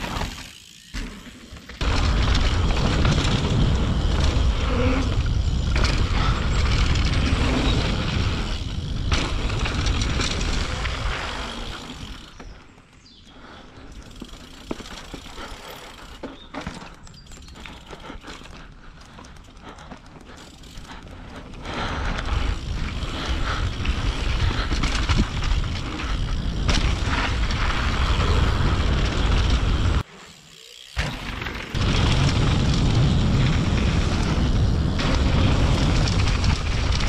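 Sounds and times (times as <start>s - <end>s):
bike knocks and rattles: 0.0s - 12.9s, 14.1s - 21.0s, 21.6s - 30.1s
bike tyres rolling over dirt: 0.0s - 37.0s.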